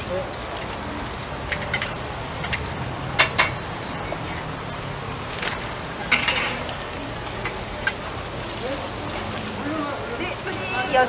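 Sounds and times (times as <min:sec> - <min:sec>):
pancakes sizzling in oil: 0:00.0 - 0:11.0
metal tools clacking on griddle: 0:01.4 - 0:04.5, 0:05.4 - 0:06.7.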